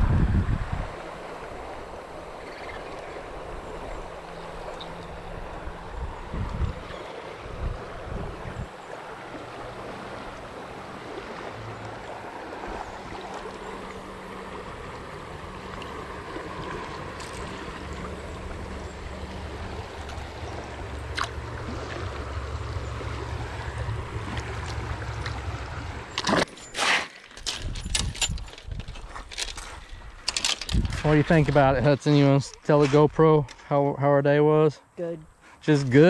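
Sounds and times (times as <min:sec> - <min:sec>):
river water rushing: 0:00.7 - 0:26.4.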